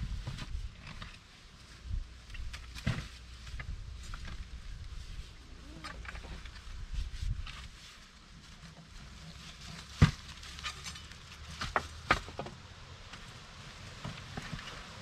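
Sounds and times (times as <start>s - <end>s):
digging scraping in soil: 2.3s - 12.4s.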